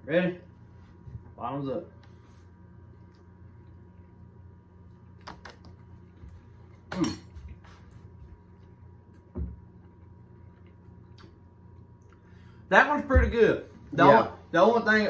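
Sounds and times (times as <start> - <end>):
steady electrical hum: 0.0 - 15.0
dull thump on counter: 9.3 - 9.6.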